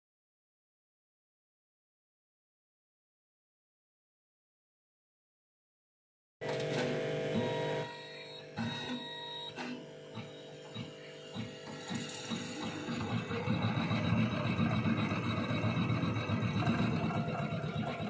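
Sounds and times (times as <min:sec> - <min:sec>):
embroidery machine stitching: 0:06.4 - 0:18.0.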